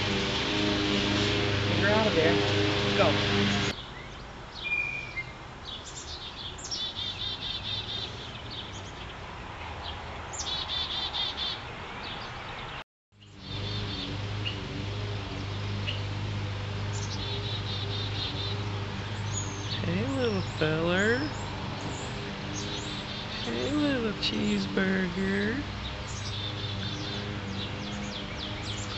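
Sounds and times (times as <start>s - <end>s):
chickadees calling: 13.2s - 28.9s
low steady hum: 13.2s - 28.9s.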